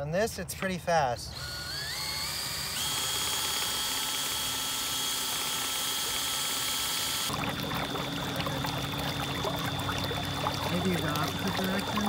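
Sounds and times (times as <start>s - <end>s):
cordless drill whining: 1.3s - 7.3s
water churning and splashing: 4.6s - 12.0s.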